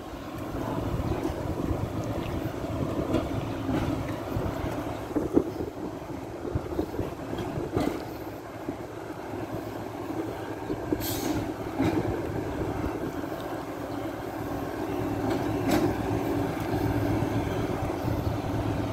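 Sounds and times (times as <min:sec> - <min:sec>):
wind buffeting microphone: 0:00.0 - 0:13.8
idling diesel truck engines: 0:00.0 - 0:18.9.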